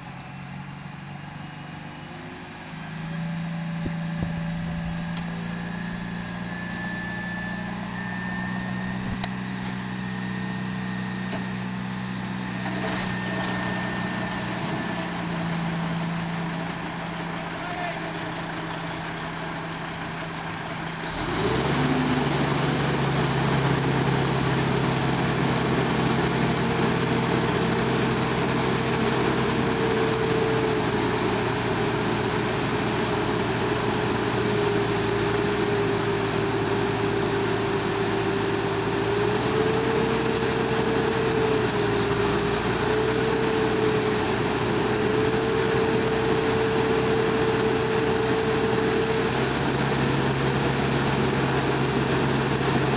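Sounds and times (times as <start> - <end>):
crane diesel engine revving: 0.0 - 52.9.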